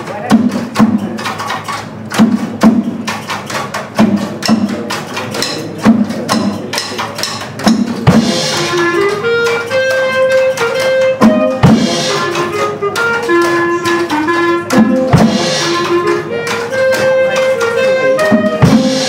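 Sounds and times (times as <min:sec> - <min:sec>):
drum kit beat: 0:00.0 - 0:19.0
heavy drum stroke and cymbal: 0:00.0 - 0:19.0
small band playing: 0:00.0 - 0:19.0
wind instrument melody: 0:08.1 - 0:19.0.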